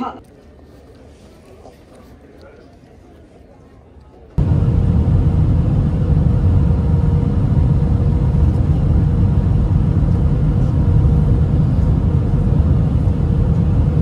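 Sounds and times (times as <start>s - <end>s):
jet airliner cabin rumble: 4.3s - 14.0s
faint steady hum: 4.4s - 14.0s.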